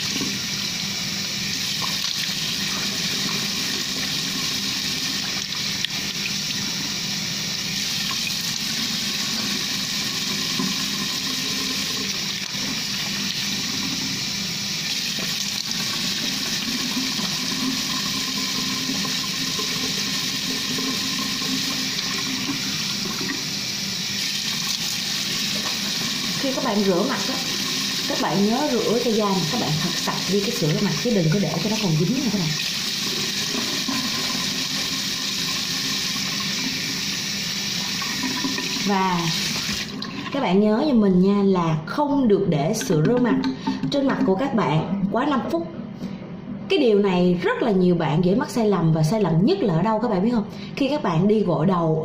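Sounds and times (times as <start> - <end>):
tap water running into sink: 0.0 - 0.6, 1.3 - 40.4.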